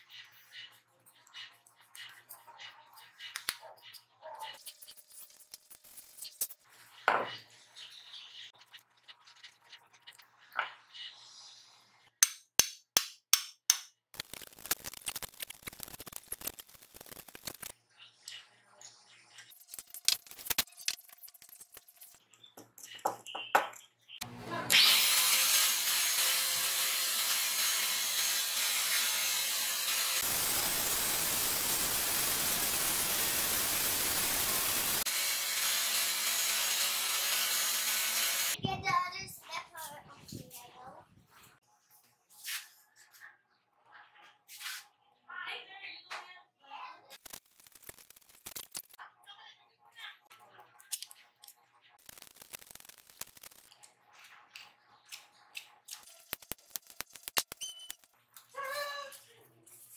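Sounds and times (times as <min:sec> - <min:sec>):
belt sander running: 0:25.0 - 0:38.6.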